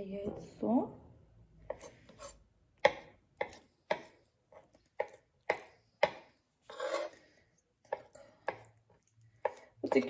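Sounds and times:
knife chopping on wooden board: 0:01.7 - 0:07.1, 0:07.9 - 0:08.7, 0:09.4 - 0:10.0.

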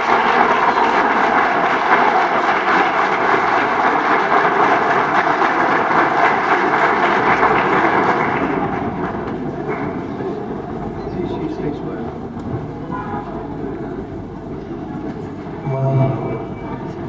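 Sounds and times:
crowd applauding and cheering: 0:00.0 - 0:10.8.

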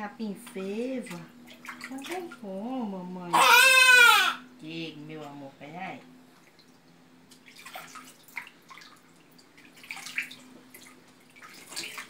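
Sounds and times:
water splashing in a tub: 0:00.3 - 0:02.8, 0:06.3 - 0:12.0.

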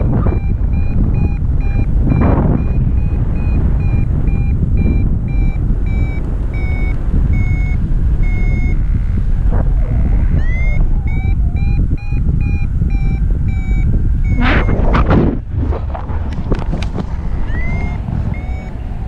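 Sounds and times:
variometer beeping: 0:00.0 - 0:15.3, 0:17.3 - 0:19.0
wind rushing on microphone: 0:00.0 - 0:19.0
rising electronic tone: 0:08.3 - 0:12.1, 0:17.4 - 0:18.8.

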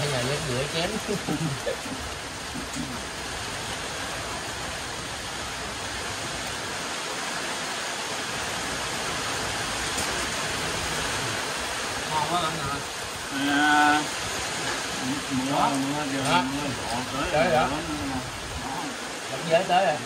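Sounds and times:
steady rain falling: 0:00.0 - 0:20.0.

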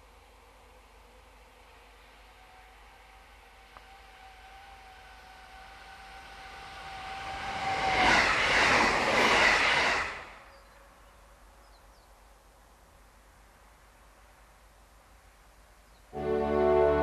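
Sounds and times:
electric train whine: 0:00.0 - 0:11.9, 0:16.1 - 0:17.0
train wheels rushing: 0:01.0 - 0:10.6.

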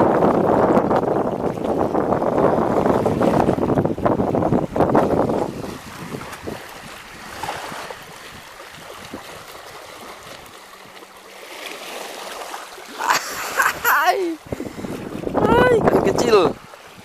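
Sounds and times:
wind on microphone: 0:00.0 - 0:17.0
small waves splashing over stones: 0:05.0 - 0:17.0.

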